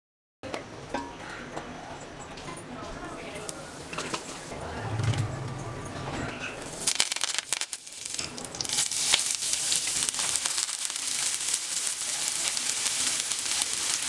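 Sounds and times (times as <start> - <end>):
leaves crackling in hot oil: 6.6 - 14.0
onion sizzling in oil: 6.7 - 14.0.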